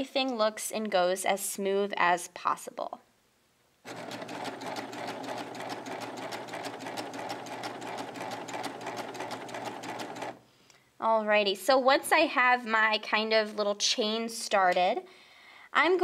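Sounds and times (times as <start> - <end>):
serger sewing machine stitching: 3.9 - 10.4.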